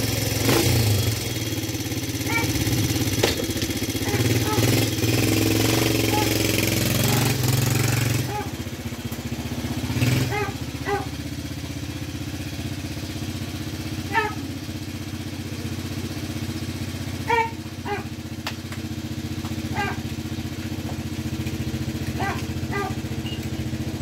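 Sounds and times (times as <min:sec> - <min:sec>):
atv engine idling: 0:00.0 - 0:24.0
dog barking: 0:04.0 - 0:04.7, 0:06.1 - 0:06.4, 0:08.3 - 0:08.6, 0:10.2 - 0:11.2, 0:14.1 - 0:14.5, 0:17.2 - 0:18.2, 0:19.7 - 0:20.1, 0:22.1 - 0:23.4.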